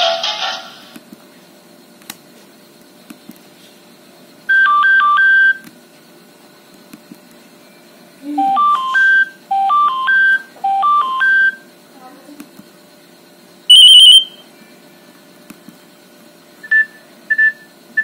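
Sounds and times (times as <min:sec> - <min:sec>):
fast stepped beep pattern: 0:13.7 - 0:14.4
alternating electronic beeps: 0:13.7 - 0:14.8.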